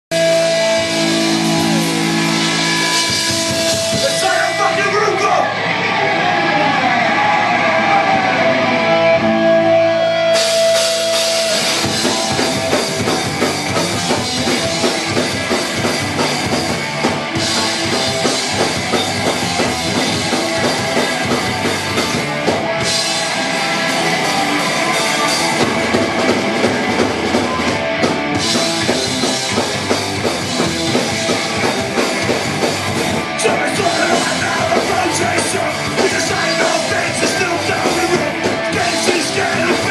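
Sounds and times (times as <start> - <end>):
distorted electric guitars: 0.1 - 39.9
drum kit: 0.1 - 39.9
shouted vocals: 3.9 - 9.3, 33.2 - 39.9.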